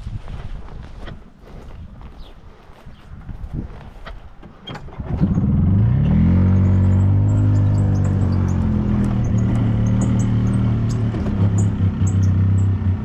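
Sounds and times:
golf cart engine starting: 4.4s - 13.0s.

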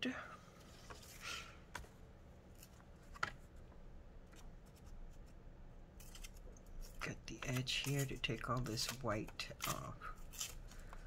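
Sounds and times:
scissors cutting paper: 6.0s - 11.0s.

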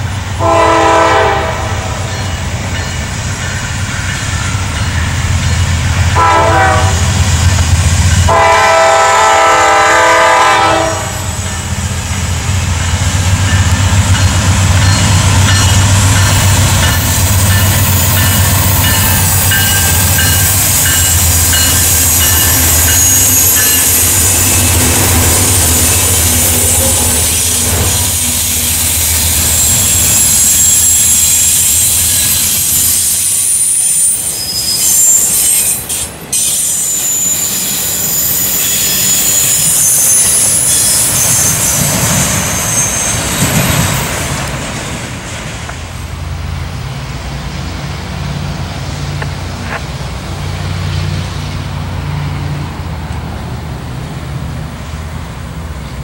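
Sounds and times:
diesel locomotive drone: 0.0s - 56.0s
train rumble: 0.0s - 56.0s
steel wheels squealing: 12.6s - 44.3s.

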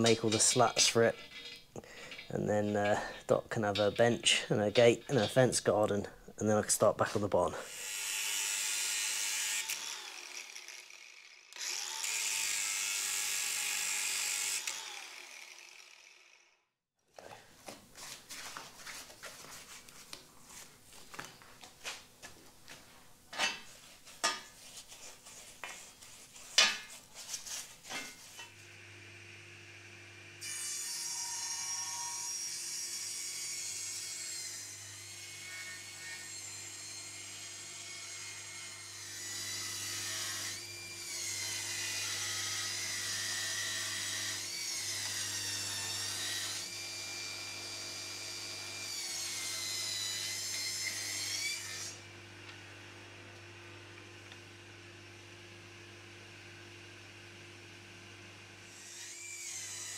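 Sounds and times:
angle grinder on metal: 0.0s - 5.6s, 7.1s - 16.4s, 30.4s - 52.0s, 58.7s - 59.9s
table saw cutting timber: 7.2s - 16.5s, 26.6s - 52.2s, 57.0s - 59.9s.

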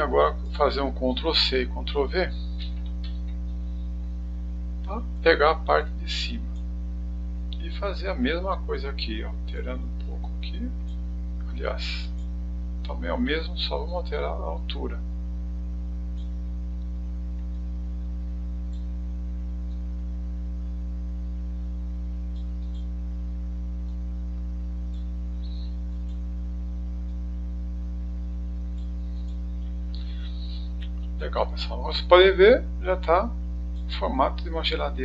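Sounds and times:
electrical mains hum: 0.0s - 35.0s
faint clicks: 2.4s - 3.9s, 10.0s - 13.0s, 16.1s - 17.7s, 18.6s - 20.0s, 22.2s - 23.0s, 23.8s - 26.4s, 28.6s - 31.2s, 33.6s - 34.0s.

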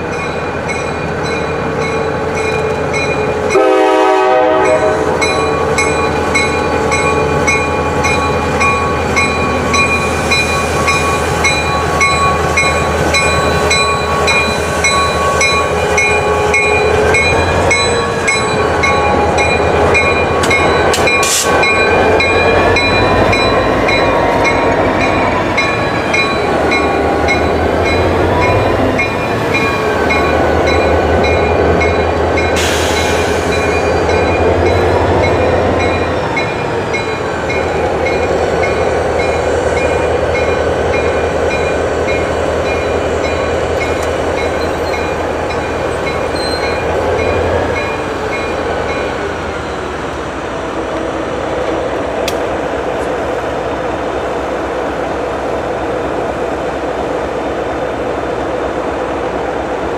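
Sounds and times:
diesel locomotive engine drone: 0.0s - 59.9s
passenger cars rolling on rails: 0.0s - 59.9s
crossing bell ringing rapidly: 4.6s - 32.6s, 33.5s - 49.2s.

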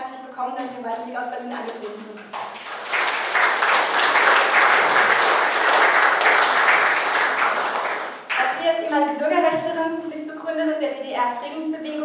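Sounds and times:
audience applause: 2.4s - 8.4s.

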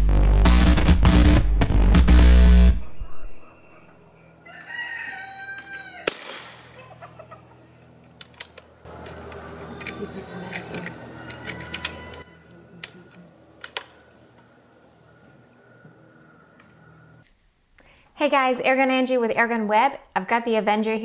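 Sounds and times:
air rifle shot: 6.0s - 6.8s
metallic clicks of rifle lever: 13.6s - 14.0s.

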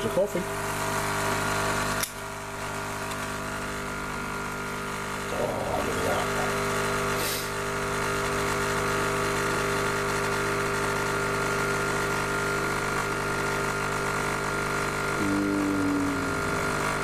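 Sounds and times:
coffee machine pump buzzing: 0.0s - 17.0s
higher hum: 15.2s - 17.0s.

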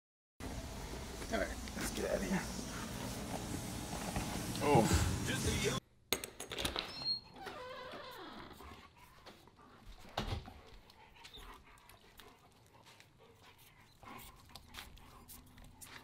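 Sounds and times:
dog panting: 8.3s - 16.0s.

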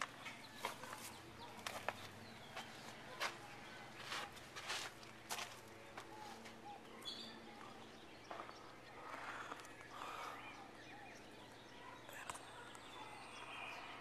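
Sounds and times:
faint outdoor ambience: 0.0s - 14.0s
bird chirps: 6.1s - 14.0s.

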